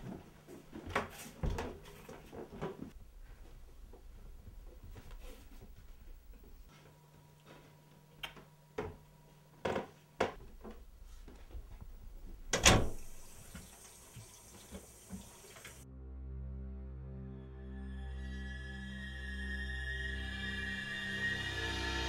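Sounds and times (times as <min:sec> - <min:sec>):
background music: 0:15.8 - 0:22.0.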